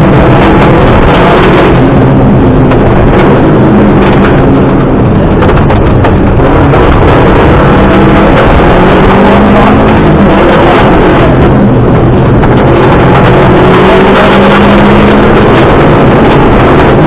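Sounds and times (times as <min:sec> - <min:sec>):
rally car engine running hard: 0:00.0 - 0:17.0
scattered knocks: 0:02.6 - 0:09.2.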